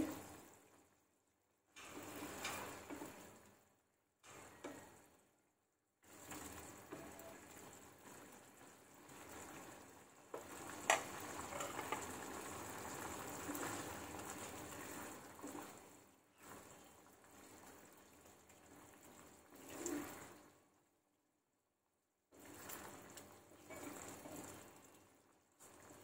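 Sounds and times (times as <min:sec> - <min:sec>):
sauce bubbling in a saucepan: 0:00.0 - 0:05.4, 0:06.0 - 0:21.1, 0:22.2 - 0:26.0
food dropped in and stirred: 0:10.4 - 0:12.2.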